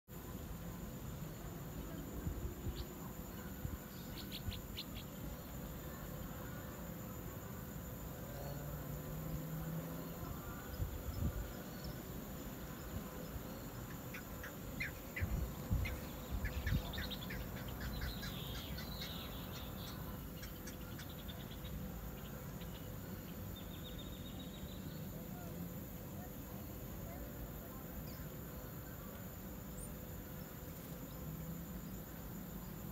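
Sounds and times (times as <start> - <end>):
insect chorus trilling: 0.2 - 32.9
bird chirping: 3.9 - 5.6, 10.0 - 25.5.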